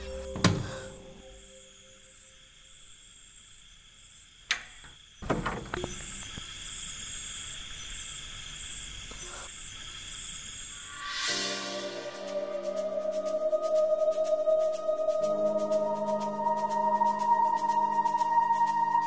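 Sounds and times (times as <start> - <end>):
high insect chirring: 0.0 - 19.0.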